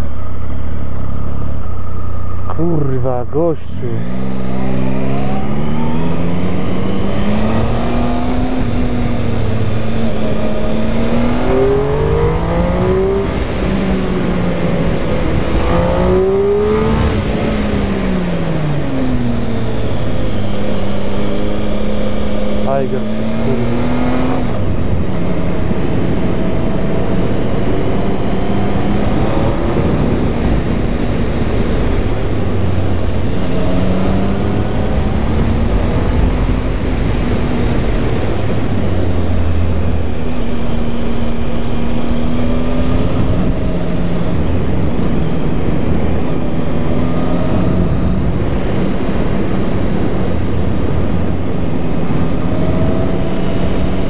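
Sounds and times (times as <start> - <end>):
motorcycle engine running at speed: 0.0 - 3.0, 3.8 - 54.0
wind rushing on microphone: 3.8 - 54.0.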